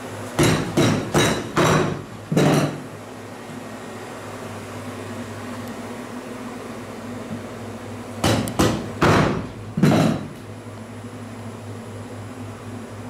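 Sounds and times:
meat cleaver chopping onto cutting board: 0:08.2 - 0:10.3.

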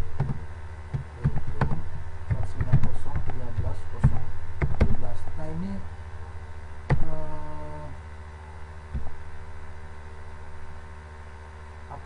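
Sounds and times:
low electrical hum: 0:00.0 - 0:12.0
person humming: 0:06.9 - 0:08.0.

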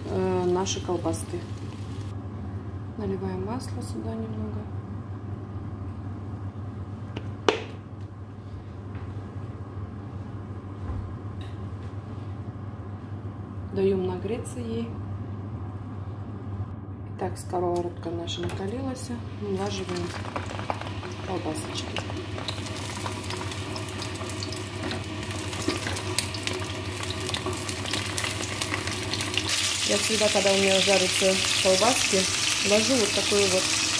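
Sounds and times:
sausages sizzling in oil: 0:00.0 - 0:02.1, 0:19.6 - 0:33.9
steady low hum: 0:00.0 - 0:33.7.

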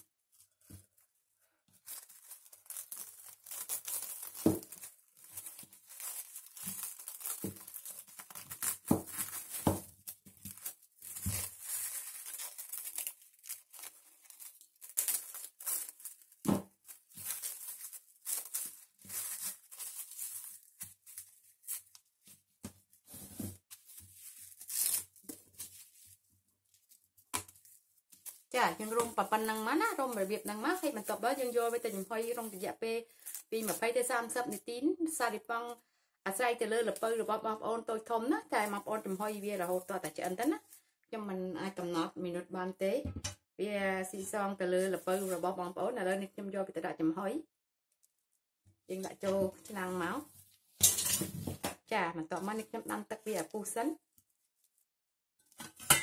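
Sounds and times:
cling film crinkling: 0:00.2 - 0:34.6, 0:38.4 - 0:40.8.

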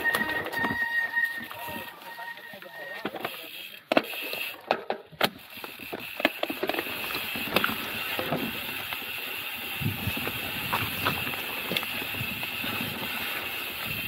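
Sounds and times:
bike knocking and rattling: 0:00.0 - 0:14.0
tyre and wind noise: 0:05.1 - 0:14.0.

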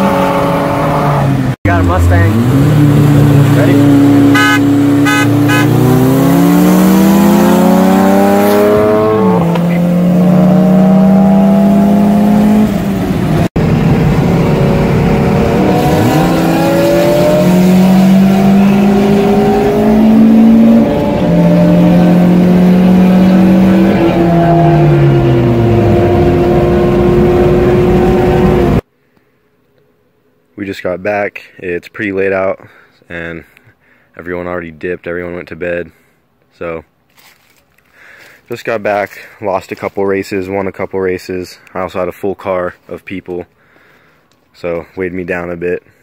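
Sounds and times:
car engine accelerating: 0:00.0 - 0:28.8.

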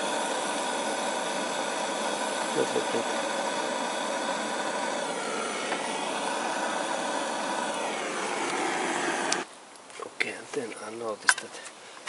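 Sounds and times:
gas torch hissing: 0:00.0 - 0:09.5.

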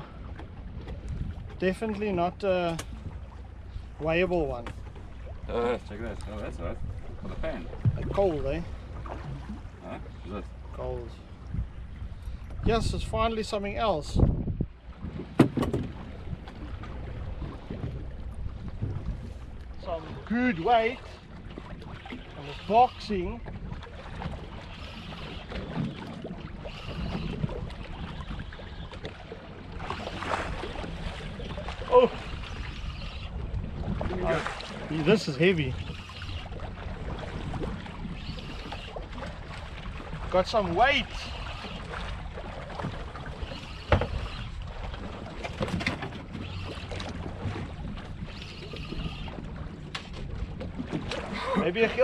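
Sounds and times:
wind on microphone: 0:00.0 - 0:01.6, 0:11.4 - 0:20.3, 0:21.7 - 0:29.1, 0:29.8 - 0:40.4
water washing around boat: 0:00.0 - 0:52.0
fishing reel being wound: 0:24.8 - 0:25.5, 0:26.7 - 0:27.4, 0:35.8 - 0:36.5, 0:38.1 - 0:39.0, 0:46.4 - 0:47.0, 0:48.3 - 0:49.4.

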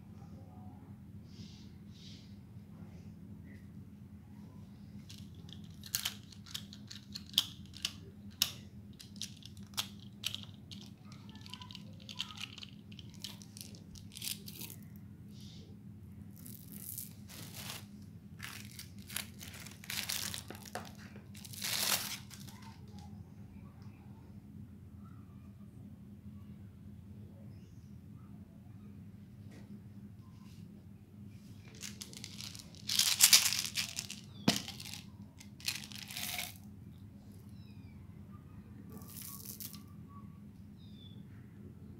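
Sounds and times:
candy wrapper crinkling and tearing: 0:05.1 - 0:14.8, 0:16.4 - 0:22.7, 0:31.6 - 0:36.6, 0:39.0 - 0:39.8
plastic clicks and rattles: 0:05.1 - 0:14.8, 0:31.8 - 0:36.6.

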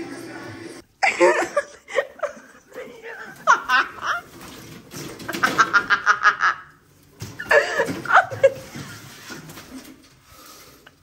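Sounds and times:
woman laughing: 0:01.0 - 0:04.3, 0:05.4 - 0:06.7, 0:07.4 - 0:09.3.

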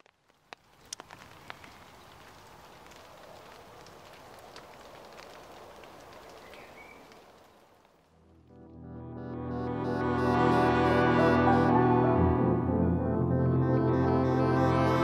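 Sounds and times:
sharp clicks and crackles: 0:00.0 - 0:08.1.

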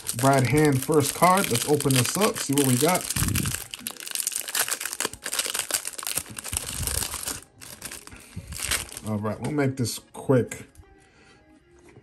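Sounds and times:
wrapper crinkling and tearing: 0:00.0 - 0:09.2.

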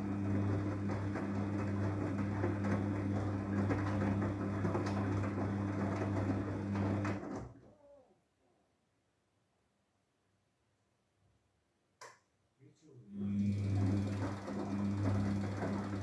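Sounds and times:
wet laundry churning in drum: 0:00.0 - 0:07.2, 0:13.3 - 0:16.0
washing machine motor hum: 0:00.0 - 0:07.6, 0:13.1 - 0:16.0.

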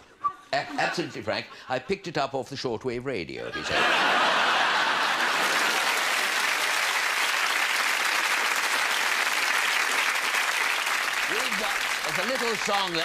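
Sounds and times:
large audience applauding: 0:04.0 - 0:13.0.

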